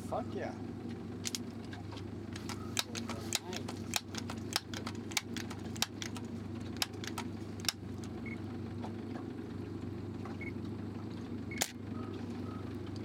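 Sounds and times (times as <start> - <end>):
boat engine idling: 0.0 - 13.0
sharp clicks: 2.3 - 8.1.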